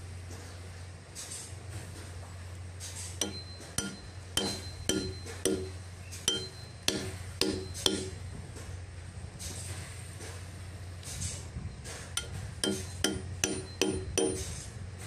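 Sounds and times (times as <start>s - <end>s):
steady low hum: 0.0s - 15.0s
hatchet tapping steel chisel: 3.2s - 8.2s, 12.2s - 14.5s.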